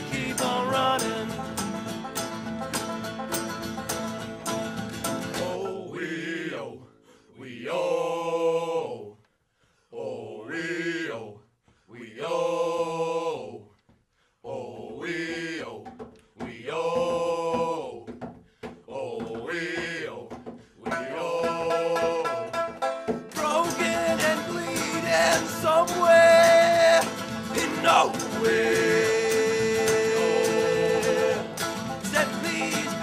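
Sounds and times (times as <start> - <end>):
men singing as a group: 0.0 - 1.5, 5.2 - 6.8, 7.4 - 9.1, 12.0 - 13.6, 14.4 - 18.1, 18.9 - 22.6, 23.3 - 33.0
string band playing: 0.0 - 5.7, 20.9 - 33.0.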